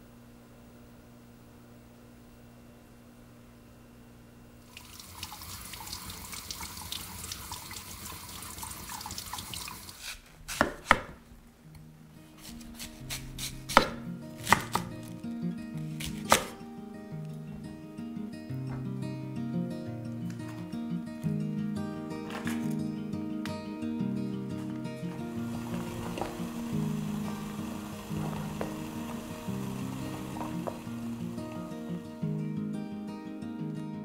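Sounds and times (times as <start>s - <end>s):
running water hissing: 4.6s - 10.2s, 25.1s - 32.3s
knife chopping on wooden board: 10.4s - 11.2s, 12.4s - 14.9s, 16.0s - 16.6s
soft background music: 11.8s - 34.0s.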